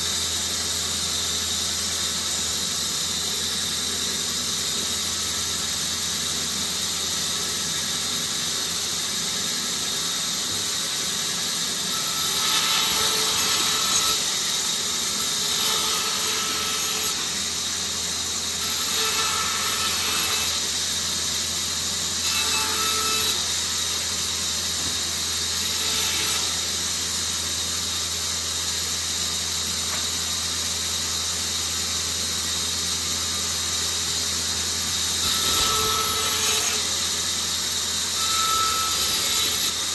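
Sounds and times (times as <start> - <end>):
bandsaw running: 10.6 - 28.6, 33.0 - 39.9
bandsaw cutting wood: 11.8 - 27.0, 34.9 - 39.9.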